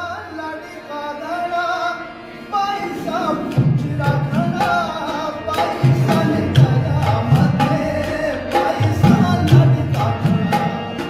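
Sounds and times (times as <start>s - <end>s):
song with singing: 0.0s - 11.0s
hand-drum percussion: 3.1s - 11.0s.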